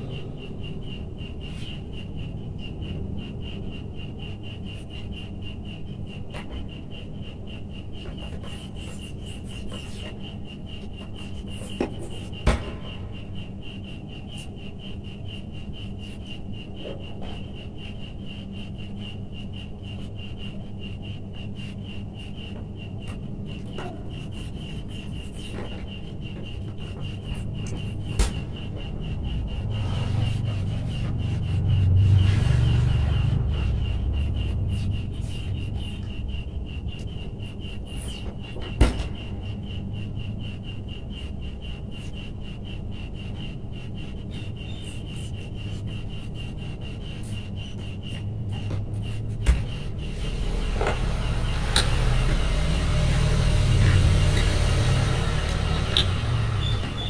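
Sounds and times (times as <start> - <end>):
rapid pulsing high tone: 0.0 - 57.0
steady background hum: 0.0 - 57.0.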